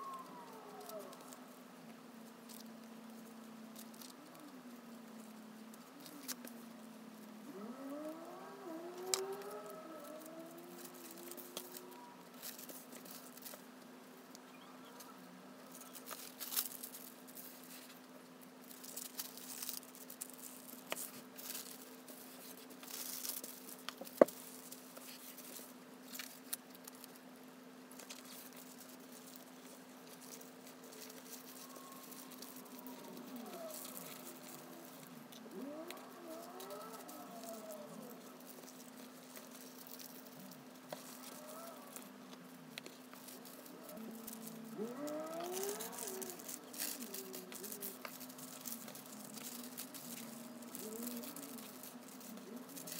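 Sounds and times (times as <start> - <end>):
tissue paper rustling and crinkling: 0.0 - 1.5, 2.2 - 13.7, 15.6 - 27.2, 27.9 - 52.9
rising-and-falling calls: 31.4 - 39.1, 43.4 - 48.0.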